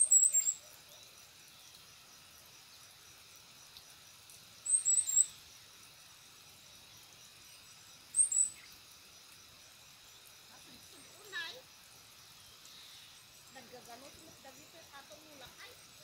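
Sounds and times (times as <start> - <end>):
small bird chirping: 0.0 - 1.8, 4.6 - 5.6, 7.0 - 8.9, 12.2 - 16.0
faint insect hiss: 0.0 - 16.0.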